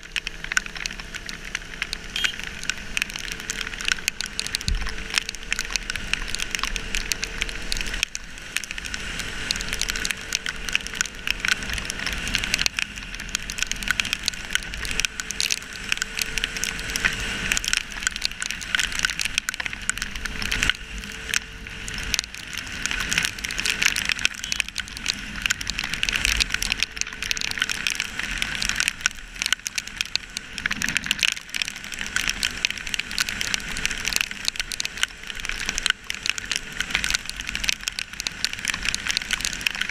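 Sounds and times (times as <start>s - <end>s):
rain pattering on camera housing: 0.0s - 39.9s.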